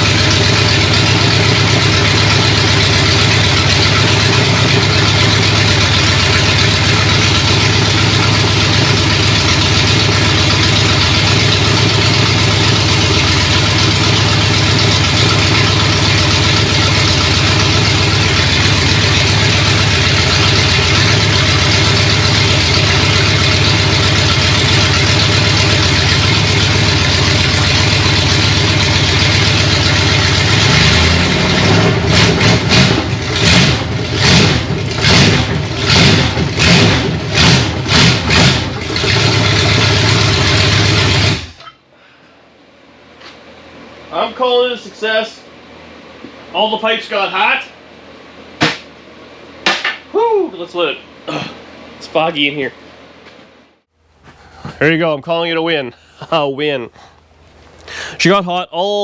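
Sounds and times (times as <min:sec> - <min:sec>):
loud engine revving: 0:00.0 - 0:41.6.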